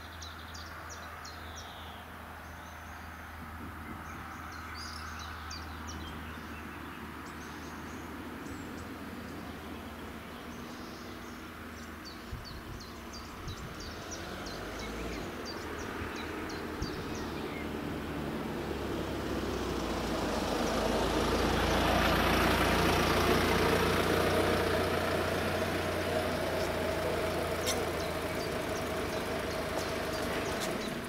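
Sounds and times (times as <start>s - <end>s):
car pulling up and stopping: 3.0s - 31.0s
bird chirping rapidly: 26.1s - 31.0s.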